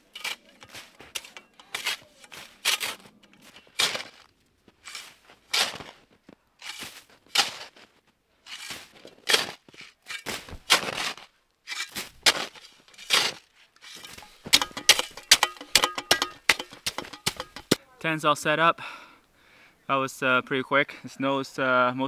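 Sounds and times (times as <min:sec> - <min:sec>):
snow shovel scraping snow: 0:00.1 - 0:15.2.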